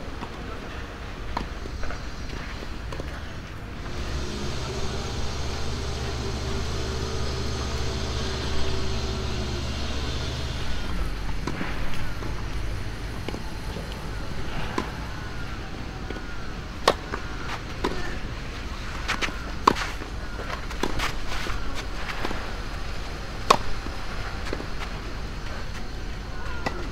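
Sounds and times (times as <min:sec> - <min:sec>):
low mechanical hum: 0:00.0 - 0:26.9
tennis ball hit and bouncing: 0:16.8 - 0:18.2, 0:23.4 - 0:25.0.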